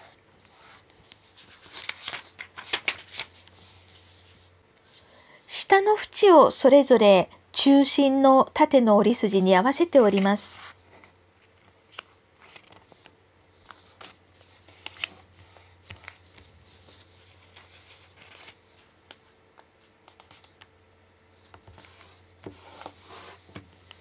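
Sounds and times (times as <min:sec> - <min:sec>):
faint steady hum: 0:00.0 - 0:24.0
paper rustling and crinkling: 0:01.0 - 0:04.4, 0:10.1 - 0:20.6.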